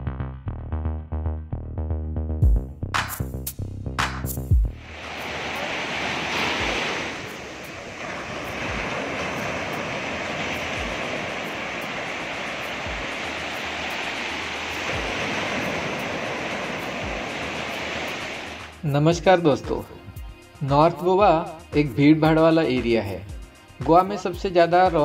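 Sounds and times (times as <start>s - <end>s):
waves breaking on shore: 4.7s - 21.8s.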